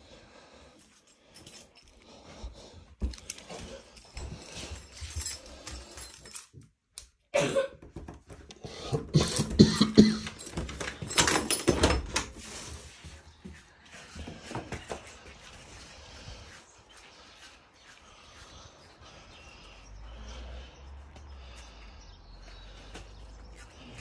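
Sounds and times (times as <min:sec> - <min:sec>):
knocks rustles and clatter: 0:07.8 - 0:15.3.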